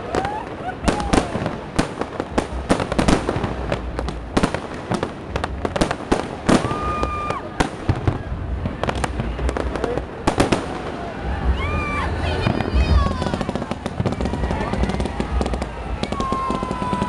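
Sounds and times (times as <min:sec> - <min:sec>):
fireworks cracks and bangs: 0:00.0 - 0:17.0
low rumble: 0:00.7 - 0:17.0.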